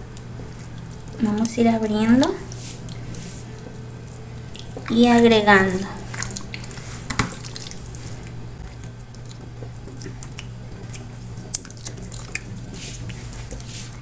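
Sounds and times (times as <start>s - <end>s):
hand squishing marinade into meat: 0.0s - 14.0s
steady low hum: 0.0s - 14.0s.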